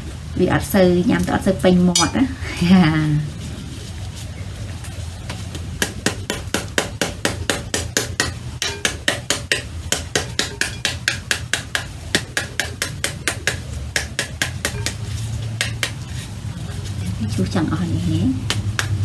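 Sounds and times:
metal spoon whacking pomegranate rind: 0:02.0 - 0:02.2, 0:07.5 - 0:16.1.

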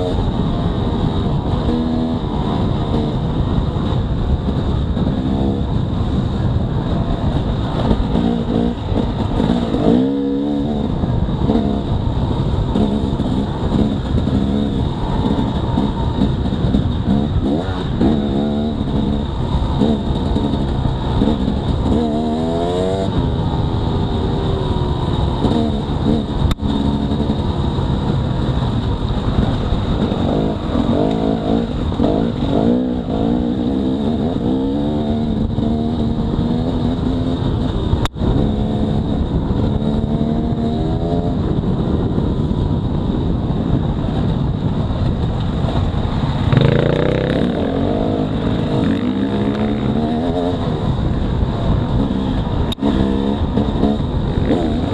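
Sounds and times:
dirt bike engine revving: 0:07.0 - 0:28.6, 0:29.2 - 0:37.6, 0:46.1 - 0:50.9, 0:51.7 - 0:54.9.

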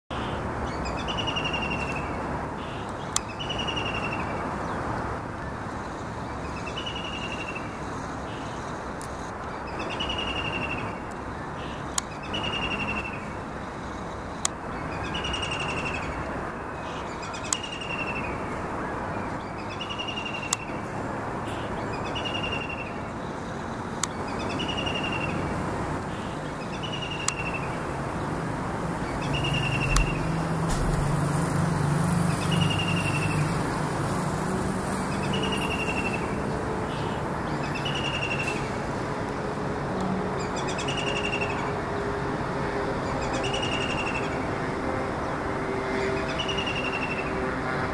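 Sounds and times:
kingfisher calling: 0:29.0 - 0:31.1.

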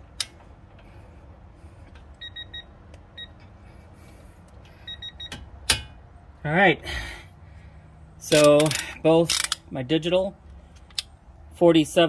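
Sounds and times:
torque wrench click: 0:08.3 - 0:09.6.

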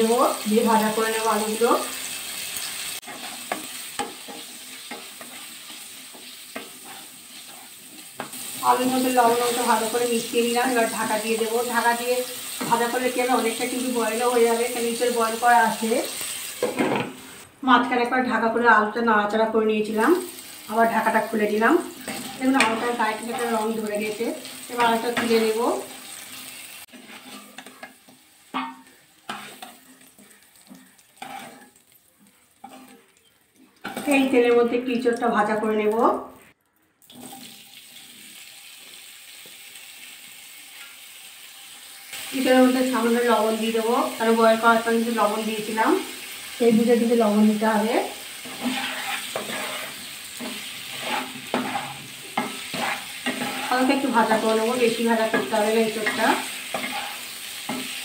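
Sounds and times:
potatoes sizzling in hot oil: 0:00.0 - 0:17.5, 0:19.8 - 0:36.2, 0:37.1 - 0:58.0
spatula scraping a pan: 0:02.4 - 0:09.8, 0:22.0 - 0:31.8, 0:32.4 - 0:33.2, 0:33.8 - 0:34.2, 0:48.3 - 0:58.0.

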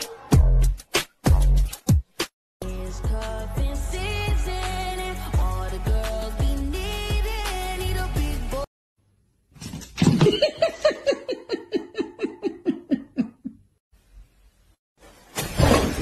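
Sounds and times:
person laughing: 0:10.1 - 0:13.8.

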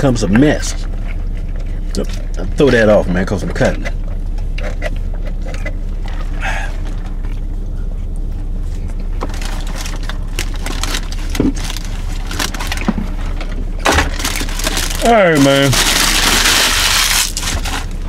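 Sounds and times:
car engine idling: 0:00.0 - 0:18.0
sandwich wrapper rustling: 0:09.2 - 0:18.0.

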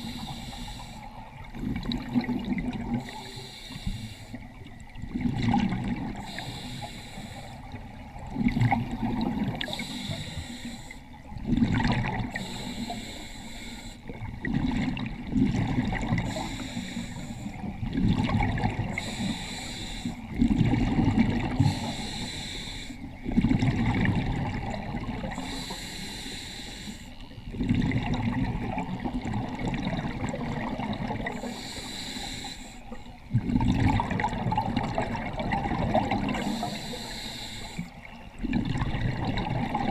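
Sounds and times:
regulator hissing inhale: 0:00.0 - 0:01.1, 0:03.0 - 0:04.4, 0:06.2 - 0:07.8, 0:09.6 - 0:11.2, 0:12.3 - 0:14.1, 0:16.2 - 0:17.7, 0:18.9 - 0:20.3, 0:21.6 - 0:23.1, 0:25.3 - 0:27.2, 0:31.3 - 0:33.1, 0:36.4 - 0:38.0.

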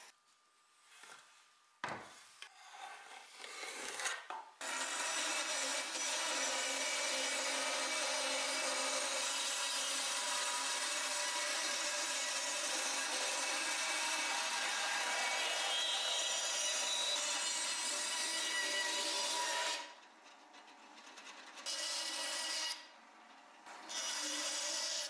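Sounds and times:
bandsaw cutting wood: 0:03.4 - 0:20.0, 0:23.8 - 0:25.0.

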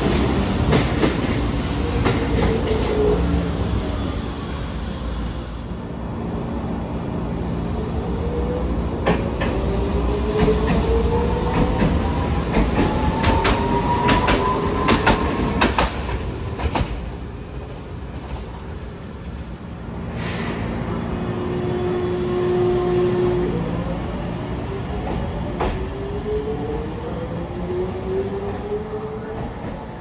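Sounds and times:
wheels clacking over rail joints: 0:00.0 - 0:03.1, 0:10.3 - 0:17.2.

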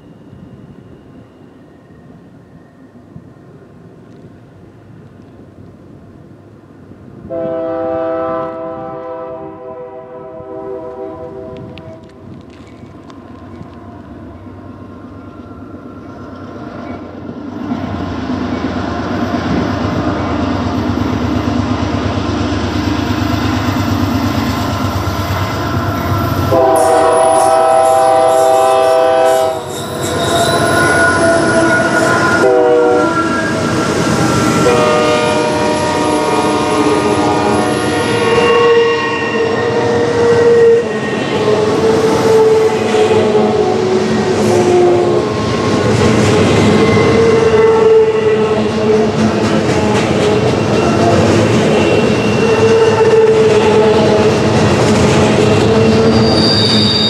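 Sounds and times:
diesel locomotive engine rumble: 0:00.0 - 0:57.0
locomotive air horn blasts: 0:07.2 - 0:12.0, 0:26.5 - 0:29.8, 0:30.4 - 0:33.6, 0:34.6 - 0:45.2.

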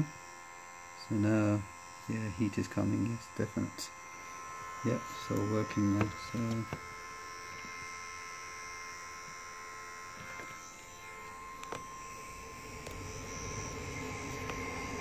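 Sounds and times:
hot air gun fan whine: 0:00.0 - 0:15.0.

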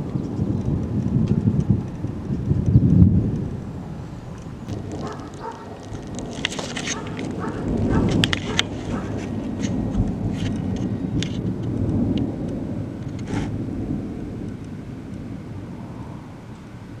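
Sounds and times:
thunder rumbling: 0:00.0 - 0:17.0
sharp ticks: 0:04.3 - 0:09.0.

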